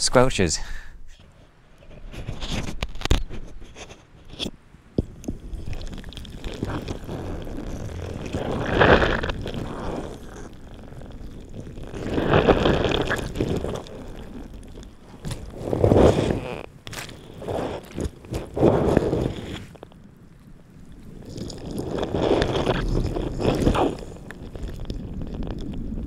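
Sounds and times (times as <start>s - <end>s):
squelchy creaking boggy ground: 1.1s - 26.0s
low wind rumble on microphone: 1.8s - 26.0s.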